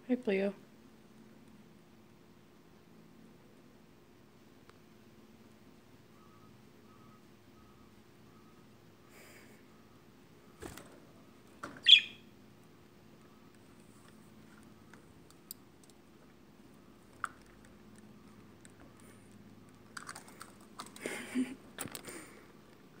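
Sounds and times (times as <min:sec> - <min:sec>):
budgie chirp: 0:11.8 - 0:12.3
beak and claw clicks: 0:17.1 - 0:22.3.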